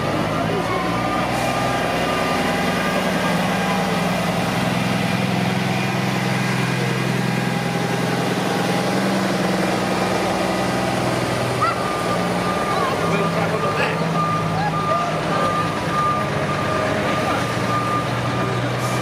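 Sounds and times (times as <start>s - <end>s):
truck diesel engines humming: 0.0s - 19.0s.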